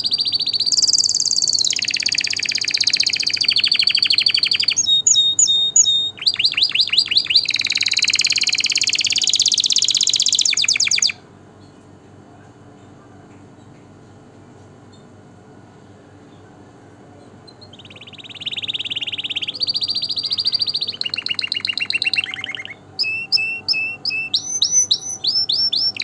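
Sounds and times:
canary singing rapid trills: 0:00.0 - 0:11.2, 0:17.4 - 0:26.0.

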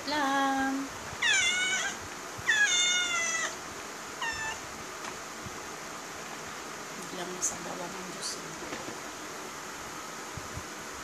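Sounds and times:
cat meowing: 0:01.2 - 0:03.6, 0:04.2 - 0:04.6.

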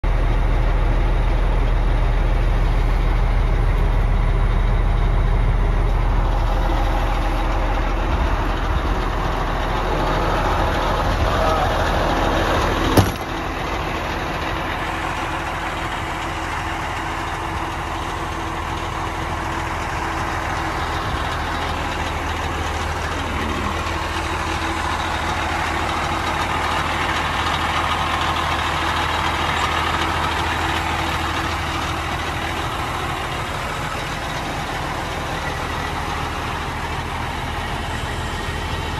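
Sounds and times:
diesel engine idling: 0:00.0 - 0:38.9
truck door slamming: 0:12.9 - 0:13.4.

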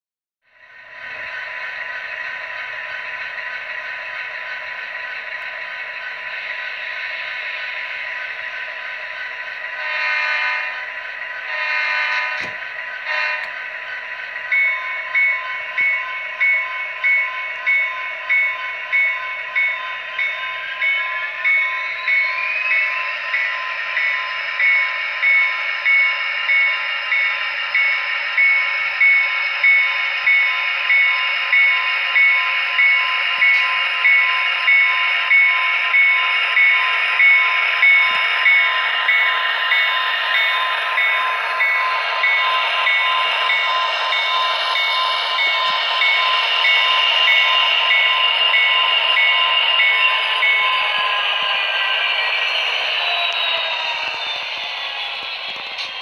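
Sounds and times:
model locomotive horn blasts: 0:09.8 - 0:10.8, 0:11.5 - 0:13.6
locomotive bell ringing: 0:14.4 - 0:56.0.

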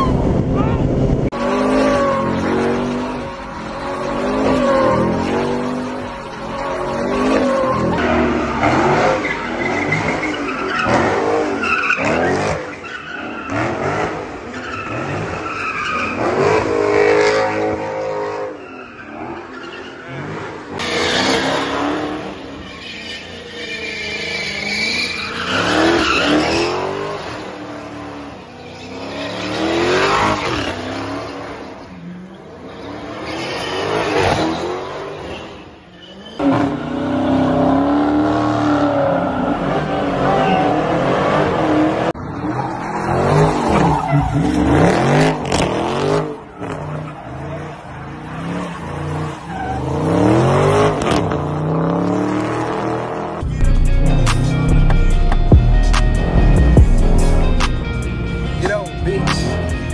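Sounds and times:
car engines revving: 0:00.0 - 0:59.9
tyres squealing: 0:18.6 - 0:27.6.

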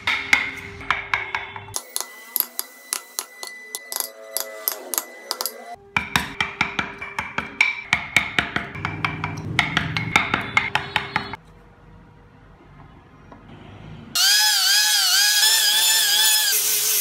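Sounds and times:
chisel knocking into wood: 0:06.0 - 0:11.3.

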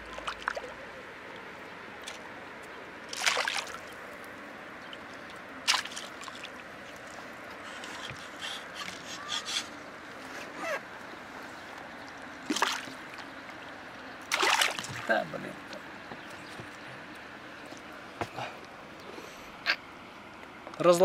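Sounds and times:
water sloshing: 0:00.0 - 0:09.3, 0:11.5 - 0:17.9
hooked fish splashing: 0:03.1 - 0:03.9, 0:05.7 - 0:06.6, 0:12.5 - 0:13.2, 0:14.3 - 0:15.1.

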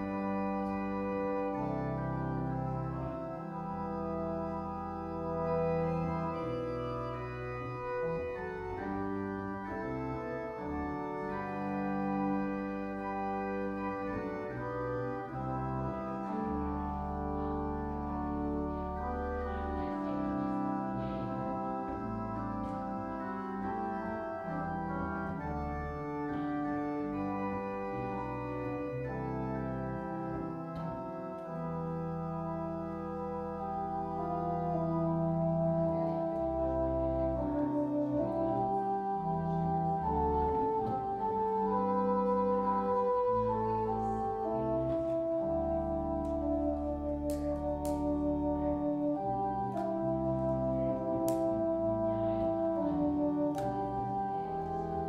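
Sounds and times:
organ playing slow chords: 0:00.0 - 0:55.0.

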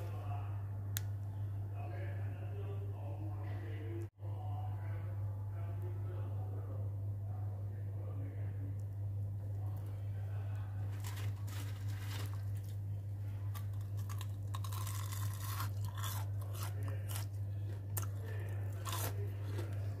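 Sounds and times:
steady low hum: 0:00.0 - 0:20.0
crisp crunching and crackling: 0:10.8 - 0:20.0.

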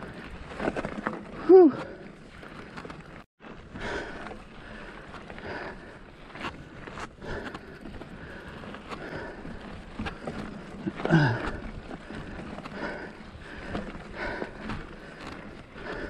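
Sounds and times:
bike rattling over rocky trail: 0:00.0 - 0:16.0
person grunting: 0:01.4 - 0:01.9
heavy breathing: 0:03.5 - 0:16.0.

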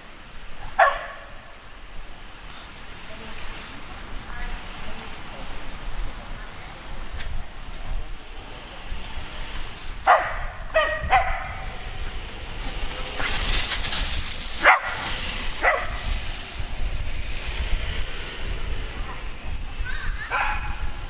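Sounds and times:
dogs barking: 0:00.6 - 0:01.5, 0:10.0 - 0:11.9, 0:14.6 - 0:16.1, 0:20.2 - 0:20.9
rustling noise: 0:11.6 - 0:18.0.

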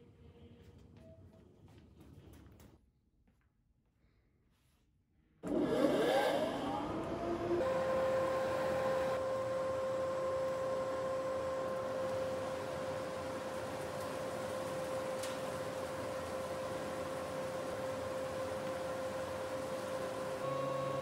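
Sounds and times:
dust collector motor whine: 0:05.4 - 0:21.0.

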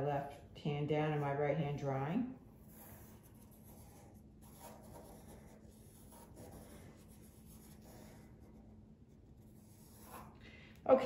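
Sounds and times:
pencil scratching on paper: 0:02.5 - 0:10.4.

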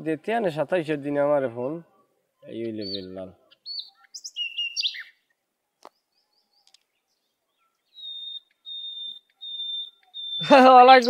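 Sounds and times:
birds chirping: 0:00.0 - 0:11.0
high whistled bird note: 0:07.9 - 0:10.5.

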